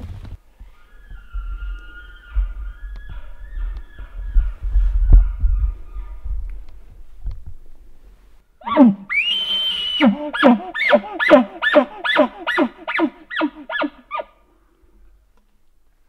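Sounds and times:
elk bugling: 0.6 - 6.3, 8.6 - 14.4.

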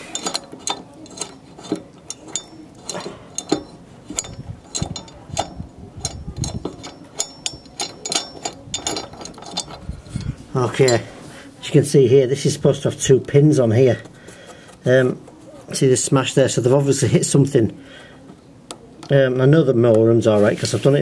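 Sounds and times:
metallic clicks and rattles: 0.0 - 11.1.

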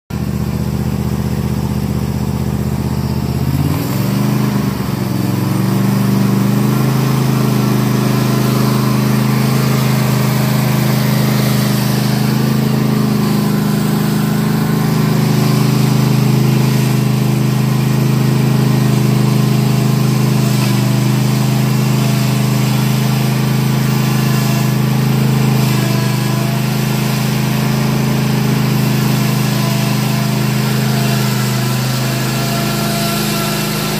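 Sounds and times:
riding mower engine revving: 0.1 - 33.9.

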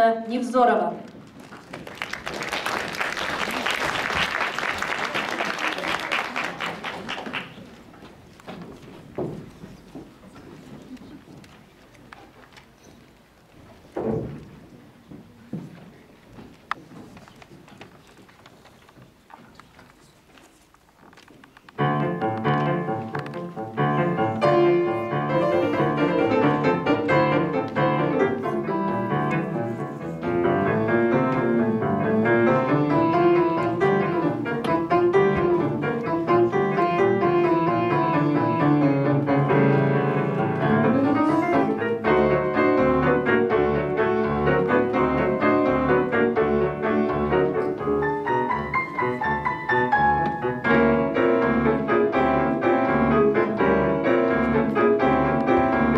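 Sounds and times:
piano four hands: 21.8 - 55.9.

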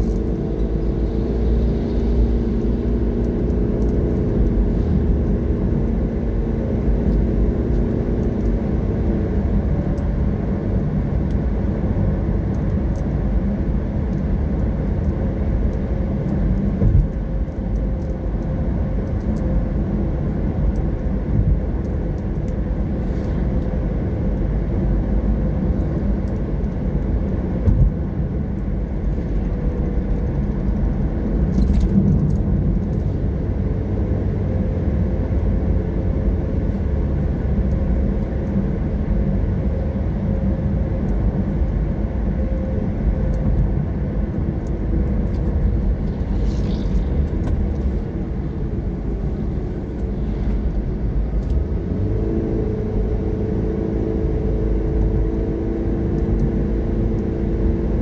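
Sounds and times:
car road noise: 0.0 - 58.0.

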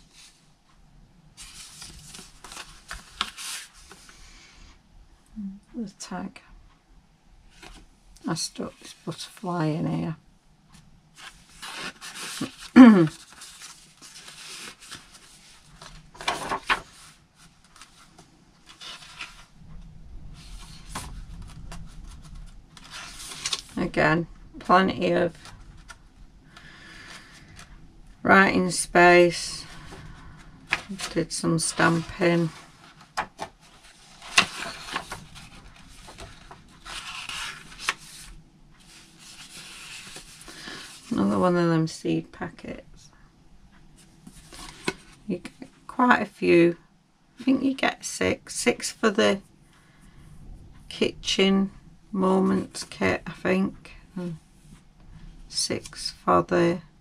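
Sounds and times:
paper pages rustling: 1.4 - 4.2, 11.2 - 19.5, 20.4 - 24.0, 24.9 - 26.0, 30.7 - 41.2, 44.0 - 45.2.

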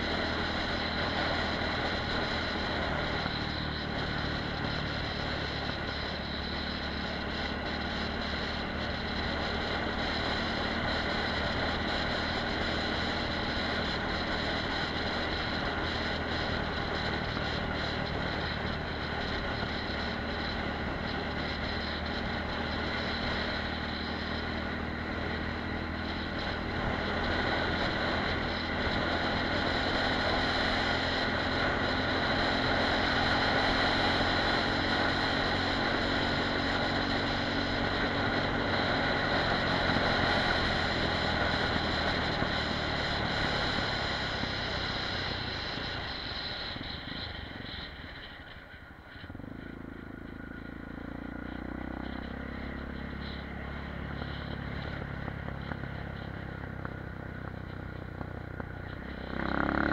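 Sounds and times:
motorcycle engine running: 0.0 - 59.9
road noise: 0.0 - 59.9.

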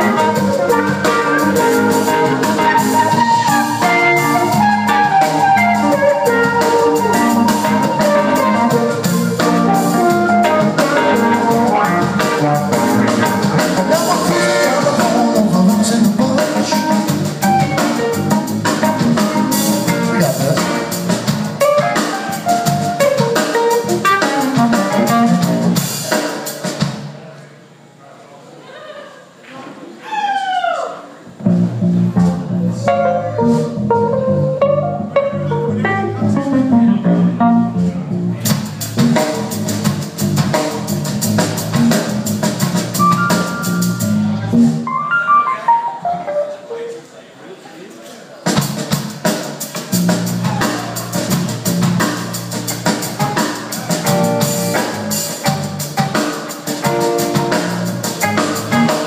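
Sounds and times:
drum kit beat with cymbals: 0.0 - 27.2, 37.4 - 44.9, 48.4 - 59.0
live rock band playing: 0.0 - 27.2, 31.3 - 47.1, 48.4 - 59.0.

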